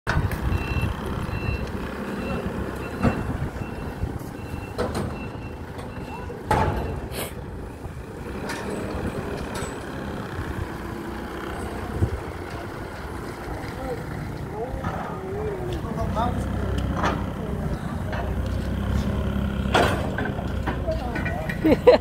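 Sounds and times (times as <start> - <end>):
diesel engine rumble: 0.1 - 22.0
reversing alarm beeping: 0.5 - 7.1
metallic clanks: 19.6 - 22.0.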